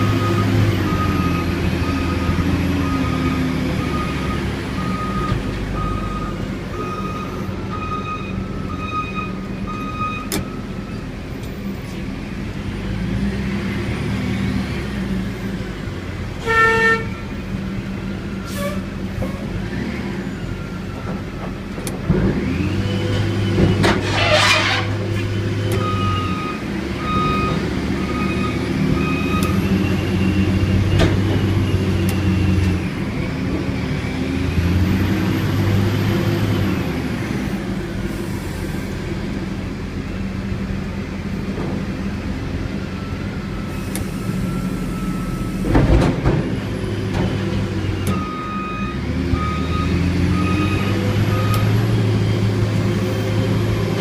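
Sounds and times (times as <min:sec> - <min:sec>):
reversing alarm beeping: 0:00.0 - 0:11.0, 0:25.4 - 0:32.7, 0:42.9 - 0:45.8, 0:47.8 - 0:51.9
diesel engine revving: 0:00.0 - 0:54.0.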